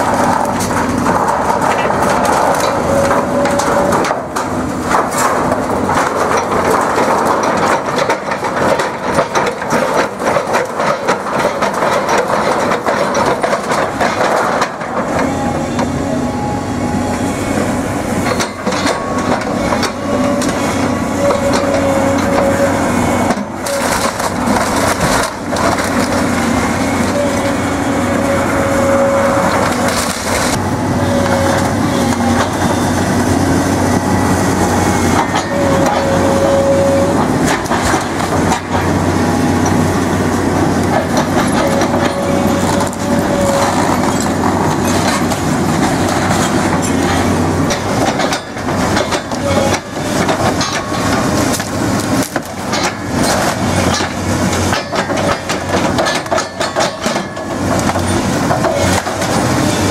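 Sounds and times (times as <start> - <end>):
excavator diesel engine and hydraulics: 0.0 - 59.9
grapple crushing timber: 21.2 - 27.5.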